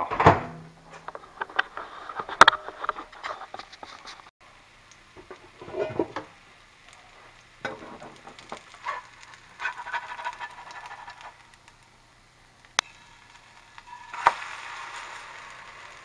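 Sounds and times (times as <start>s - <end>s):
pancake sizzling in skillet: 1.2s - 16.0s
spatula clicks and scrapes: 8.4s - 11.8s.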